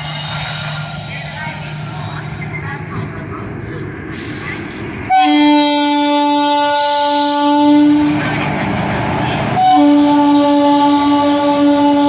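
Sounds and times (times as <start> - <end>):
rumble of passing locomotive: 0.0 - 12.0
locomotive horn blast: 5.1 - 8.3, 9.6 - 12.0.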